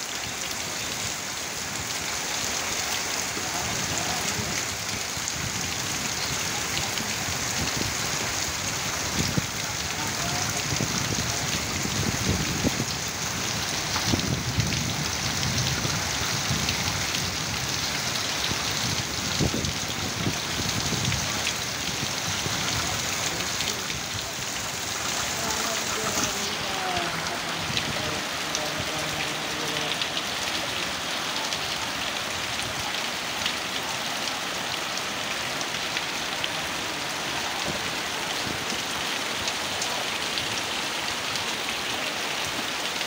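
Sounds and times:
heavy rain pouring: 0.0 - 43.0.

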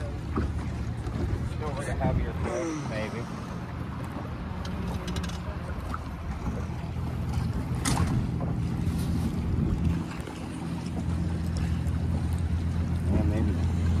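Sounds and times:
boat motor running: 0.0 - 14.0
wind on microphone: 6.3 - 12.8.

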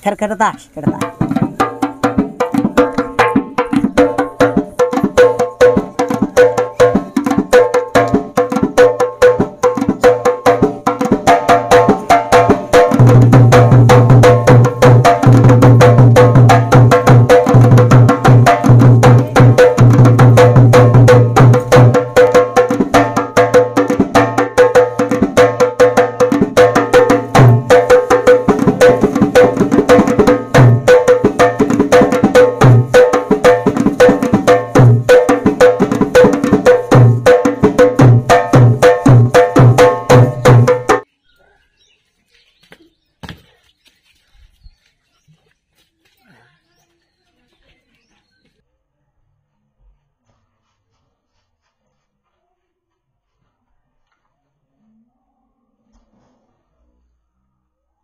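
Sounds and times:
fast folk drumming: 0.0 - 41.0.

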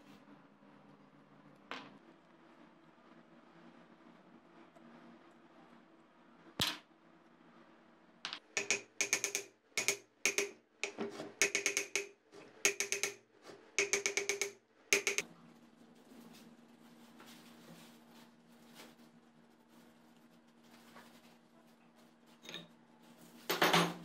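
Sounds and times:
hammer tapping on metal: 8.6 - 13.2, 13.8 - 15.2.

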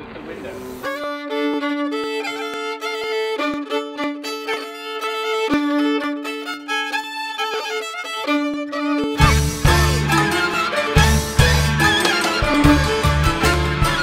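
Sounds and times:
fiddle melody: 0.8 - 14.0
low drone note: 9.2 - 14.0.

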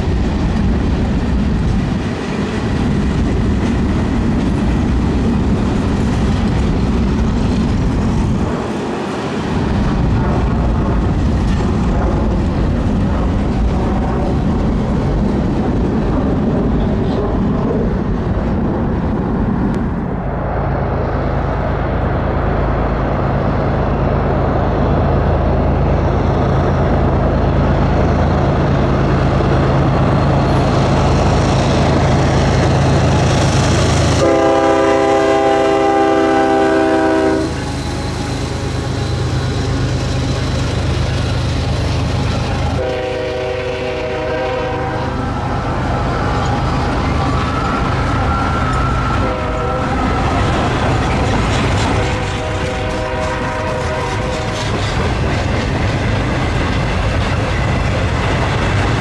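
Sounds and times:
locomotive engine drone: 0.0 - 59.0
train wheels rumbling on rails: 0.0 - 59.0
multi-tone train horn blast: 34.1 - 39.0, 42.7 - 45.3, 48.2 - 50.7, 51.8 - 54.8.

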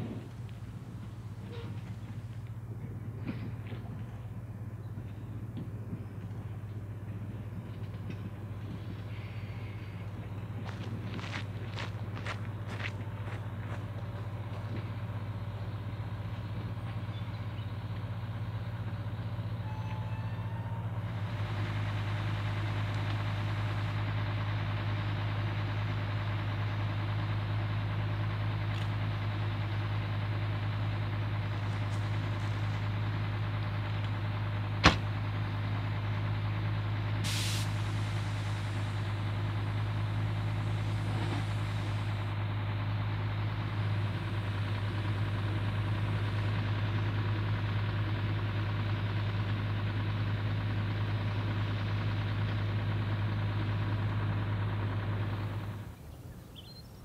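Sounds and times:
diesel engines idling: 0.0 - 57.0
air hiss: 37.2 - 39.5.

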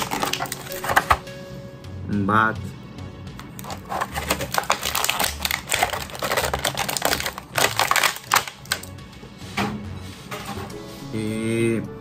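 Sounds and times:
plastic packaging crinkling: 0.0 - 1.2, 3.4 - 8.9.

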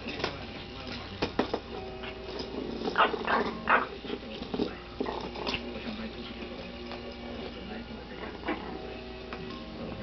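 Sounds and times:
dog growling: 2.1 - 6.5, 8.0 - 9.0.

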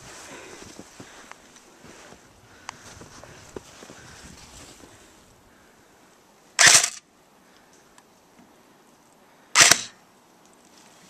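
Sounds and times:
airsoft rifle firing bursts: 6.6 - 7.0, 9.6 - 10.0.

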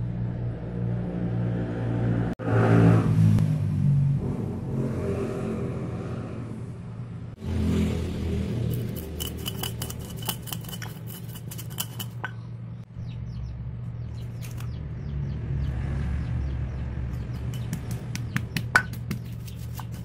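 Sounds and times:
low rumble: 0.0 - 9.1
stone pestle clicking in mortar: 8.7 - 12.3, 17.5 - 20.0.

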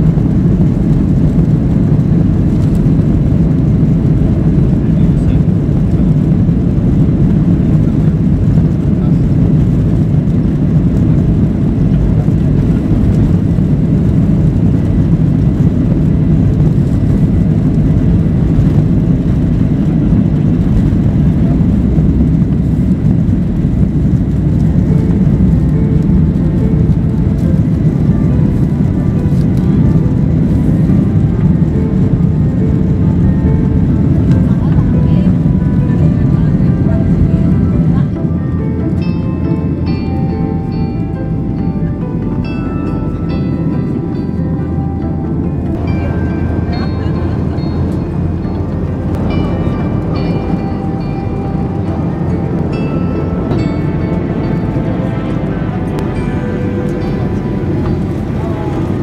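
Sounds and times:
jet engines rumbling: 0.0 - 59.0
faint steady tones: 6.5 - 59.0.

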